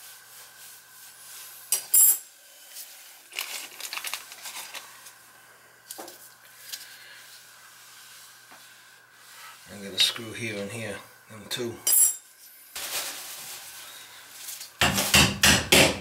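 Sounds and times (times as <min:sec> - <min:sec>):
metal ring clattering on tiled floor: 0:01.7 - 0:02.2.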